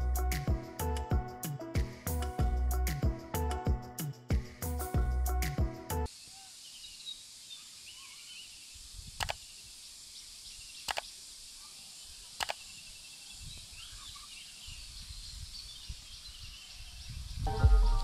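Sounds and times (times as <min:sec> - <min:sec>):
steady high hiss: 0:06.1 - 0:18.0
birds chirping: 0:06.2 - 0:18.0
mouse clicks: 0:09.2 - 0:09.4, 0:10.9 - 0:11.1.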